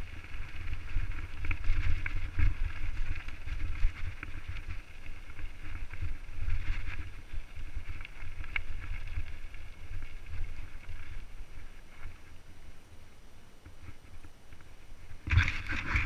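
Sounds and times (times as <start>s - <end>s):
tyres crunching over stones: 0.0s - 12.3s
wind buffeting microphone: 0.0s - 12.4s
bike rattling: 0.0s - 13.0s, 13.7s - 16.0s.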